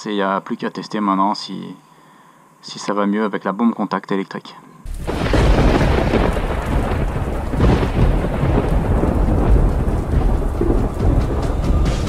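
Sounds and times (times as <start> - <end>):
heavy rain: 4.9 - 12.0
low thunder rumbling: 4.9 - 12.0.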